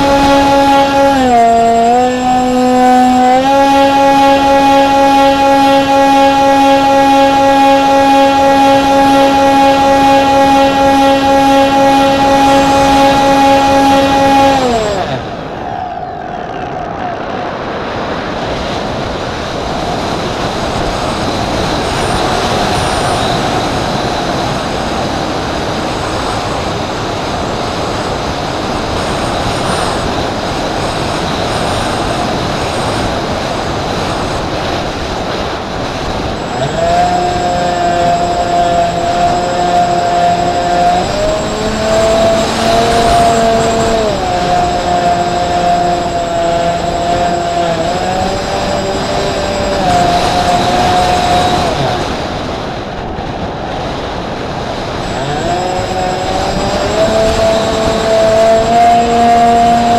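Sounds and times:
electric plane motors whining: 0:00.0 - 0:15.3, 0:35.9 - 0:52.2, 0:54.9 - 0:59.9
wind rush: 0:00.0 - 0:59.9.

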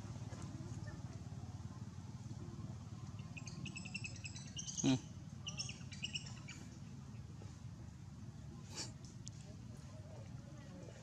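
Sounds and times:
bird chirping: 0:03.0 - 0:06.7.

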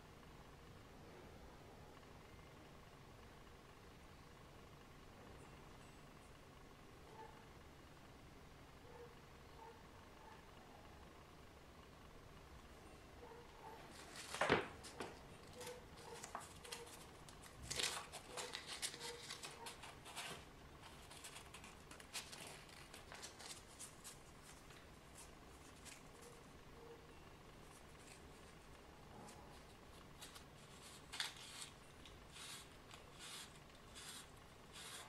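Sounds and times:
rustling and crinkling: 0:13.7 - 0:26.7, 0:27.4 - 0:34.2.

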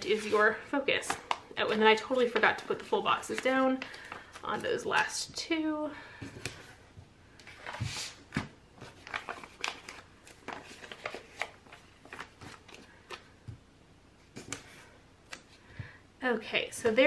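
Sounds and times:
paper rustling: 0:07.4 - 0:13.3.

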